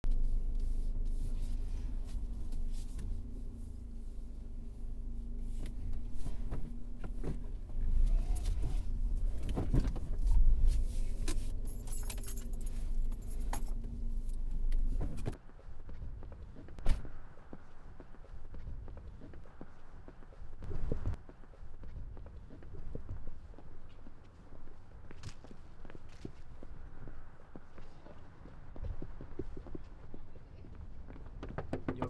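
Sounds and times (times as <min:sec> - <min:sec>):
street sound: 0:00.0 - 0:32.0
car engine idling: 0:00.1 - 0:15.3
keys jingling: 0:11.2 - 0:14.8.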